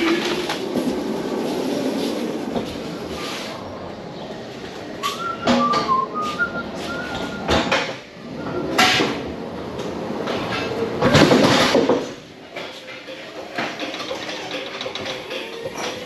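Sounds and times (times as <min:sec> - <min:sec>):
pallet jack wheels rattling: 0:00.0 - 0:16.0.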